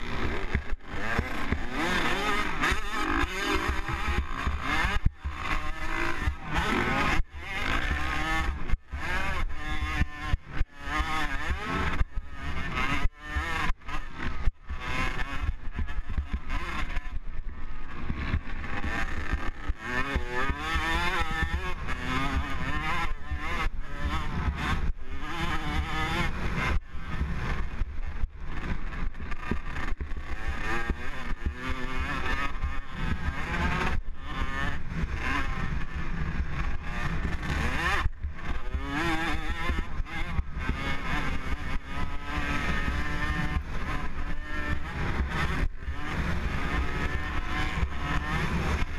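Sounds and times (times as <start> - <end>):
dirt bike engine revving: 0.0 - 48.9.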